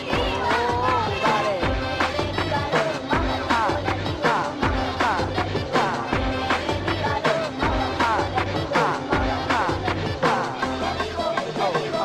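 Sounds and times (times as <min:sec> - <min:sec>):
dance music with steady beat: 0:00.0 - 0:12.0.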